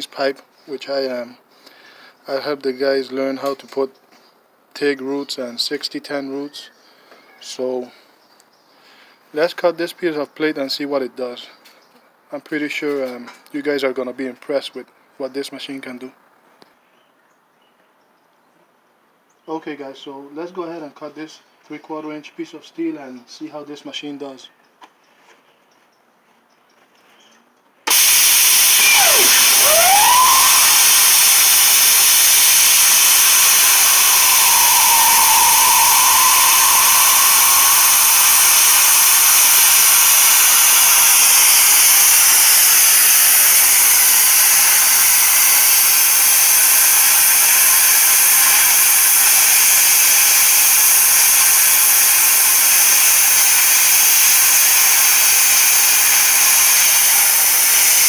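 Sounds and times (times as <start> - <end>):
plasma cutter hissing: 27.9 - 58.0
faint whistling tone: 33.5 - 40.0.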